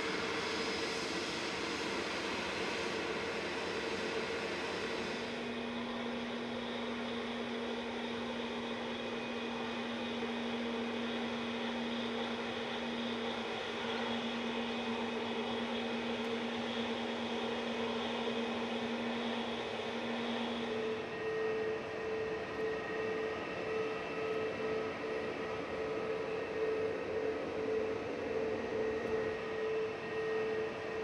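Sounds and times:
airliner engines humming: 0:00.0 - 0:31.0.

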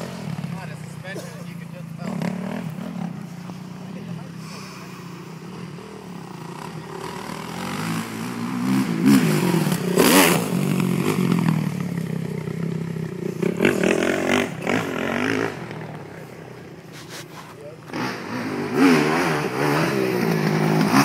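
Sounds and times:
dirt bike engines revving: 0:00.0 - 0:21.0.

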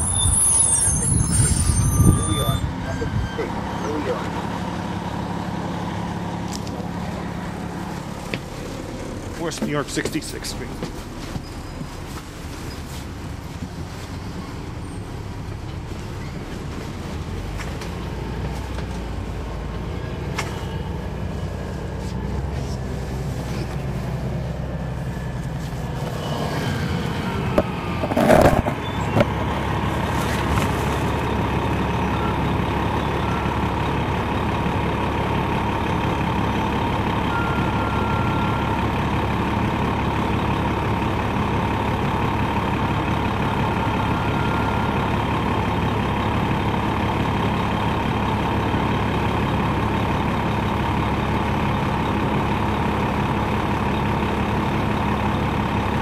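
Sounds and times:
loud engine burst: 0:00.0 - 0:03.0
diesel engine idling: 0:00.0 - 0:56.0.

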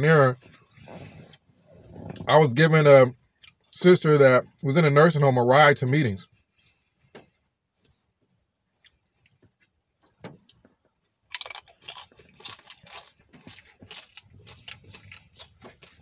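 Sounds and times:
crisp food crunching: 0:10.0 - 0:16.0.

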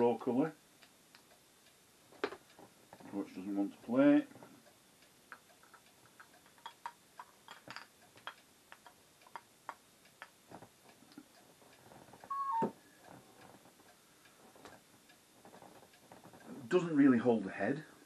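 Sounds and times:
torch clicks and taps on glass: 0:05.3 - 0:11.4
brief squeak: 0:12.3 - 0:12.7.

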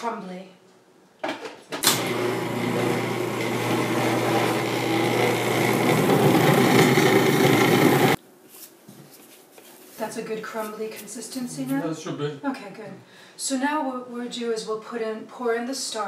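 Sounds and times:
food processor motor running: 0:01.9 - 0:08.2.

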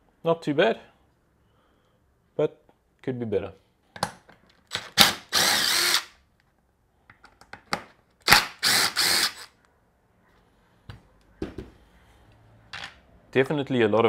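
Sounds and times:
power driver spinning: 0:04.8 - 0:06.1, 0:08.3 - 0:09.5.

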